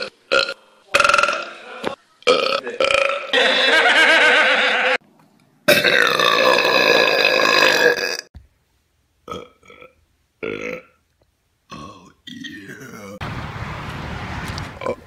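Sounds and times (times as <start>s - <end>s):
loud human belches: 0.0s - 3.4s, 5.7s - 8.3s, 9.3s - 11.0s, 11.7s - 13.2s.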